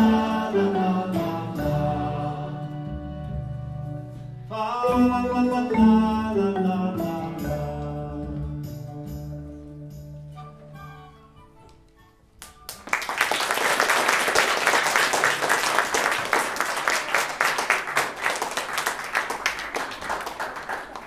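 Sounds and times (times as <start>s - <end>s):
marimba notes ringing: 4.9s - 7.8s
audience applause: 12.4s - 21.0s.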